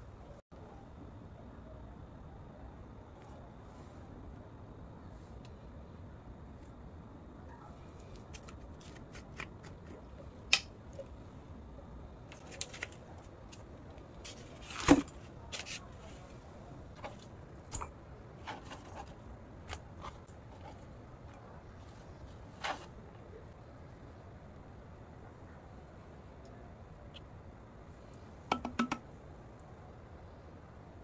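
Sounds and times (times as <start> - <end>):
objects clicking and tapping: 28.5 - 29.0.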